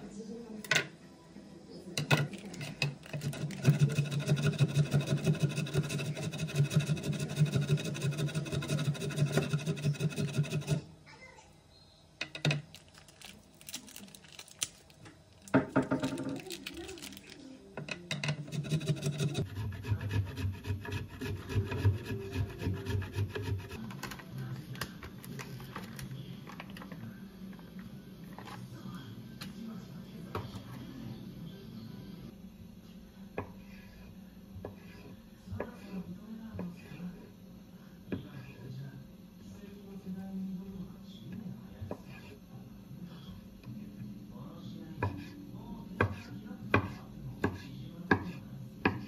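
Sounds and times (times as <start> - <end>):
cheese grating on metal grater: 2.5 - 10.8, 18.3 - 23.8.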